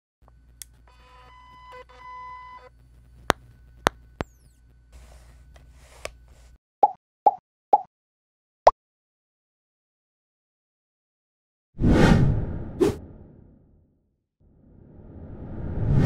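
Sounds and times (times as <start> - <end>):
low steady hum: 0.2 - 6.6.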